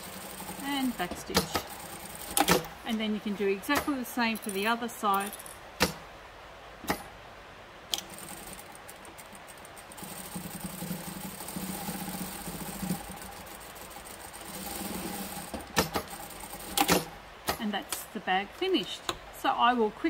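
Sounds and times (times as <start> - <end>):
sewing machine clicks: 0.0 - 2.7, 7.9 - 17.6
sewing machine stitching: 0.0 - 2.8, 8.0 - 17.6.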